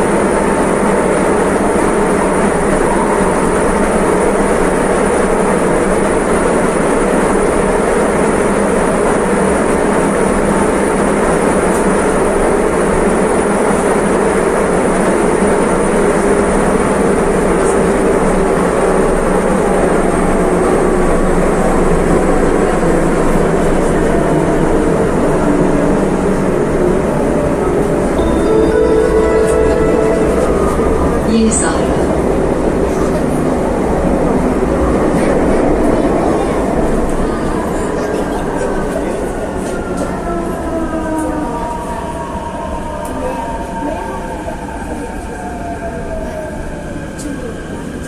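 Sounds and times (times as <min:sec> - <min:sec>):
metro train rumbling: 0:00.0 - 0:48.0
high whine: 0:28.2 - 0:33.8.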